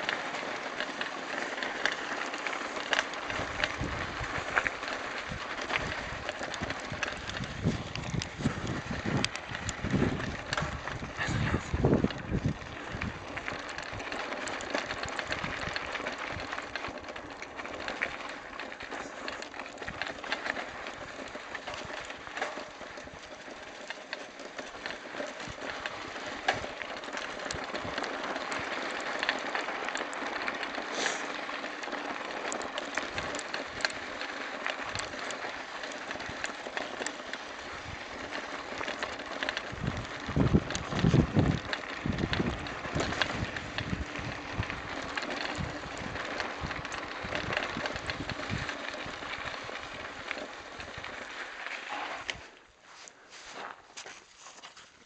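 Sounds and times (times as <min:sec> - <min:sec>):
bike rattling and knocking: 0:00.0 - 0:52.8
bike tyres crunching on gravel: 0:00.0 - 0:55.0
wind buffeting microphone: 0:03.3 - 0:16.8, 0:39.5 - 0:51.2.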